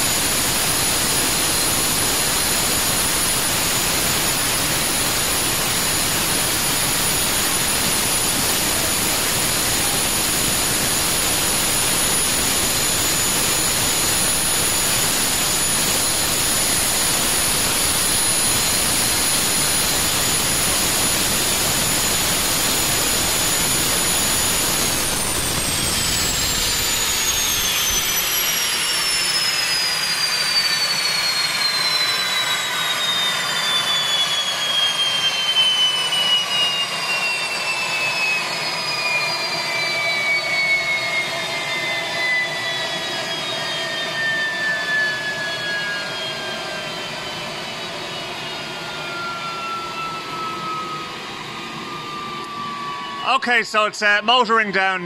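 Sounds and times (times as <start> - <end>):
turbine roaring with high whine: 0.0 - 55.0.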